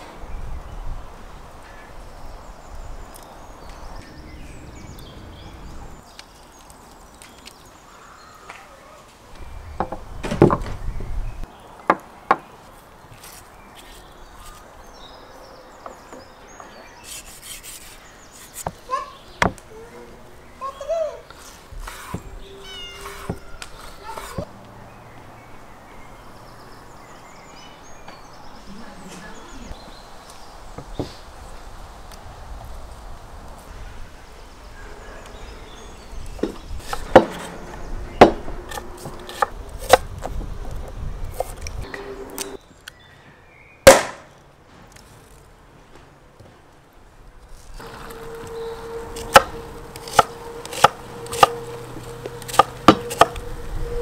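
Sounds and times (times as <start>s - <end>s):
knife chopping on wooden board: 49.2s - 51.6s, 52.5s - 53.4s.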